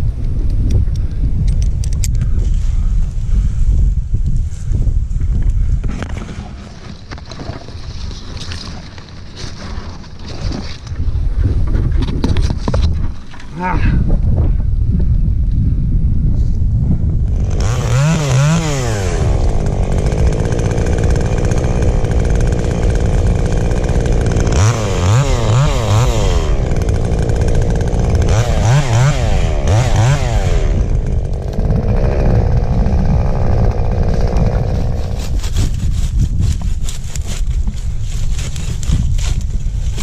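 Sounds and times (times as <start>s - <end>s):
chainsaw revving: 17.3s - 35.9s.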